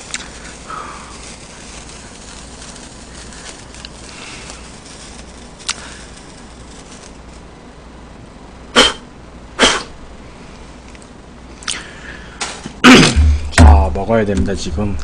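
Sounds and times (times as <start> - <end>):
man sneezing: 8.7 - 10.0, 12.8 - 13.4.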